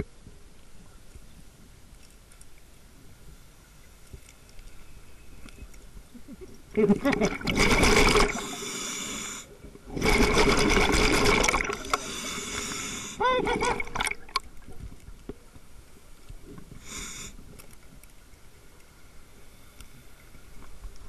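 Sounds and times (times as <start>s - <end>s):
short gurgle: 7.0s - 8.5s, 9.9s - 12.0s
rush of exhaust bubbles: 7.1s - 8.6s, 9.9s - 12.1s
diver breathing through regulator: 7.8s - 10.8s, 11.4s - 13.2s, 16.8s - 17.4s
faint hiss: 8.2s - 10.0s, 11.7s - 13.8s, 14.4s - 21.0s.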